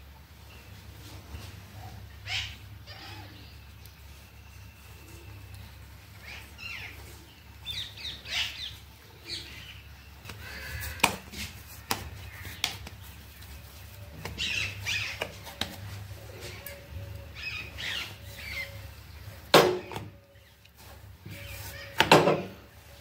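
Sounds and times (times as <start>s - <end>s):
birds chirping: 0.0s - 23.0s
hands tapping dough on board: 11.0s - 13.0s.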